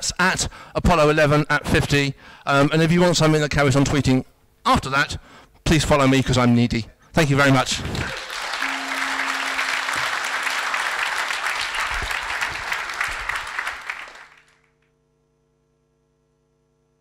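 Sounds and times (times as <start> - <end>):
audience applauding: 7.7 - 14.6
faint held tone: 8.6 - 10.2.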